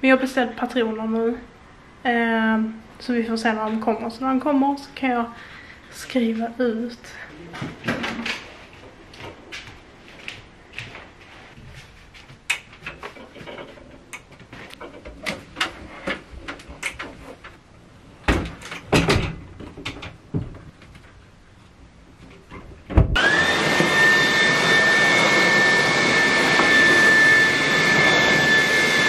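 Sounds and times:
vacuum cleaner motor whine: 0:23.2 - 0:29.0.

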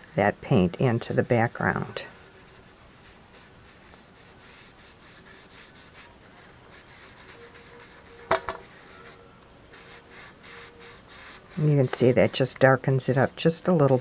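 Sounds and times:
cloth rag rubbing on tin: 0:00.2 - 0:04.6, 0:09.9 - 0:14.0.

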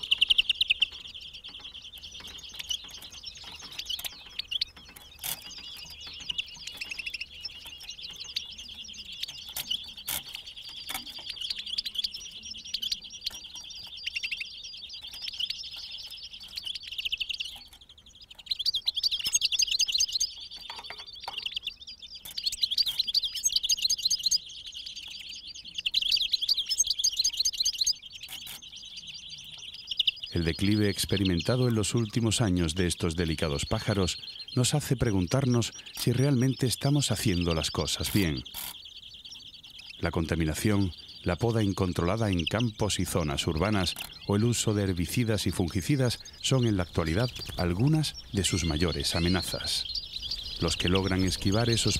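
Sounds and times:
goldfinch singing: 0:00.0 - 0:51.9.

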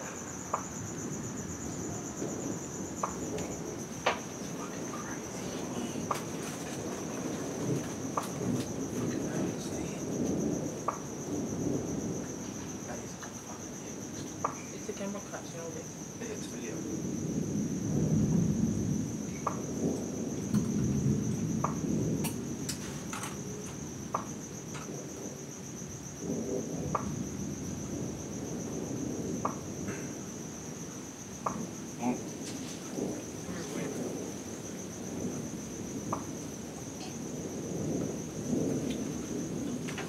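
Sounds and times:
distant thunder rumbling: 0:00.0 - 0:40.0
night insects chirring: 0:00.0 - 0:40.0.

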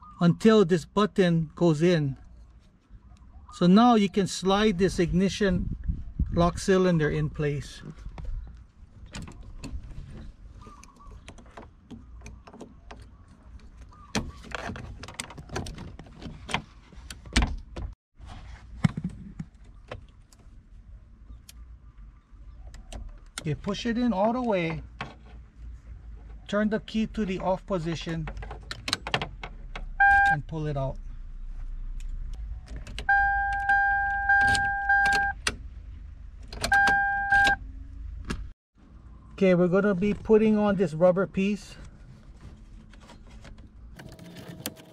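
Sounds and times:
key-reminder buzzer tone: 0:33.1 - 0:35.4, 0:36.7 - 0:37.6.

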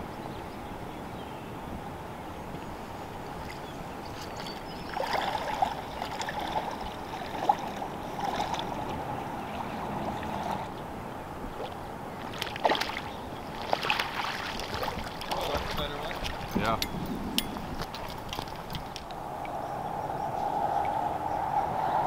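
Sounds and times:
river water running: 0:00.0 - 0:21.9
water splashing: 0:03.4 - 0:19.6.

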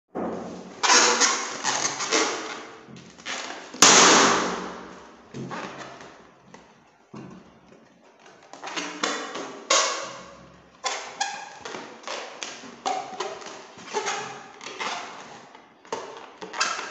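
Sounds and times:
balloons thudding and rustling: 0:00.1 - 0:06.1
balloon bursting with sharp pop: 0:03.8 - 0:04.9.

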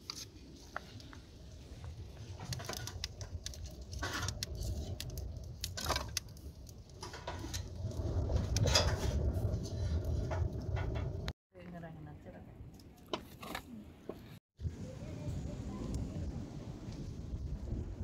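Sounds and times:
low rushing of fire: 0:00.0 - 0:11.4, 0:14.6 - 0:18.0
wood fire crackling: 0:00.0 - 0:11.4.

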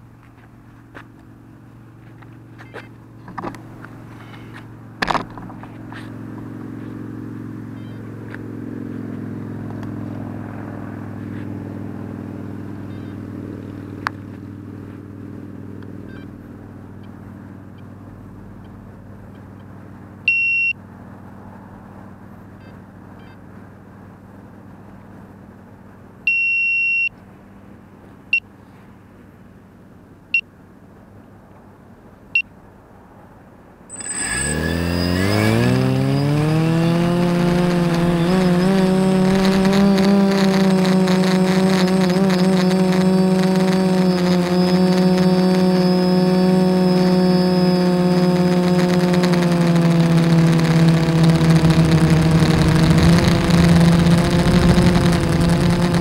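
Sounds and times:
steady low hum: 0:33.9 - 0:56.0.

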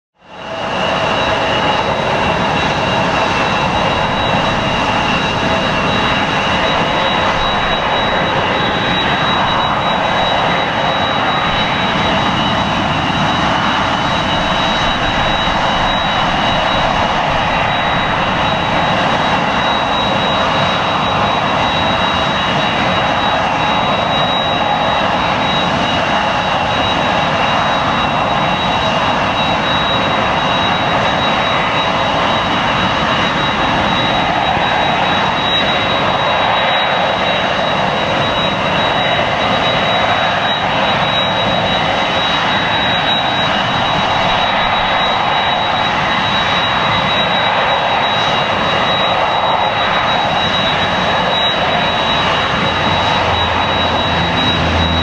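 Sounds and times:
high jet engine whine: 0:00.2 - 0:55.0
jet engines running: 0:00.2 - 0:55.0
deep rumble: 0:03.5 - 0:10.4, 0:11.3 - 0:20.0.

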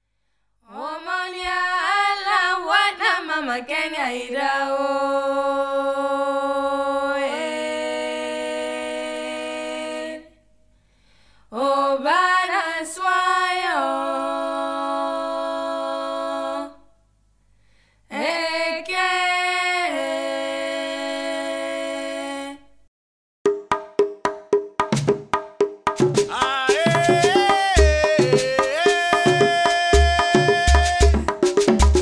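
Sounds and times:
woman singing unaccompanied: 0:00.7 - 0:10.3, 0:11.5 - 0:16.8, 0:18.1 - 0:22.7, 0:26.3 - 0:31.3.

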